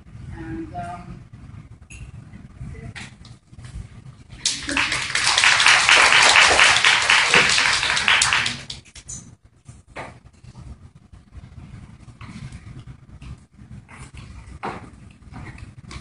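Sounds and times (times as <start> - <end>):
audience applauding: 4.4 - 8.9.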